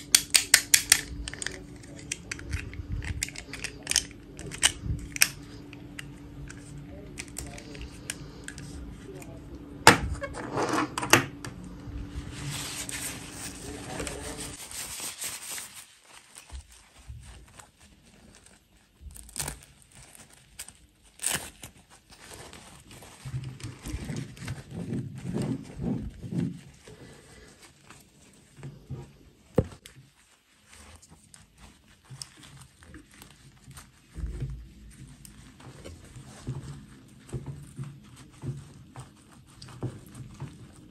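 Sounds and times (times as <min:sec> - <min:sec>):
cloth rustling and crinkling: 0:11.6 - 0:40.9.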